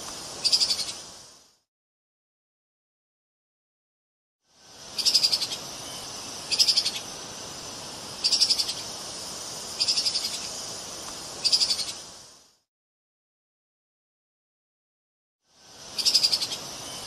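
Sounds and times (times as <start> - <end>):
steady hiss: 0.0 - 1.7, 4.4 - 12.7, 15.4 - 17.0.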